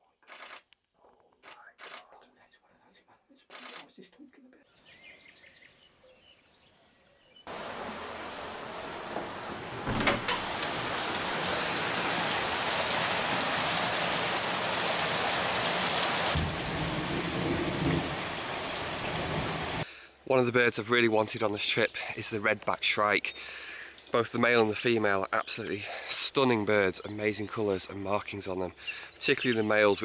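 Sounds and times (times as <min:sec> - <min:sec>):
heavy rain on concrete: 0:07.5 - 0:19.8.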